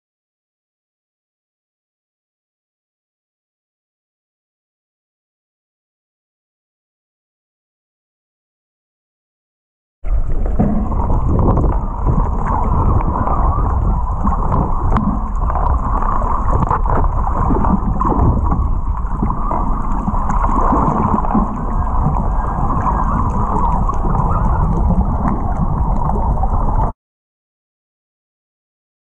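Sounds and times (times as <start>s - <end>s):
water rushing under boat hull: 10.0s - 27.0s.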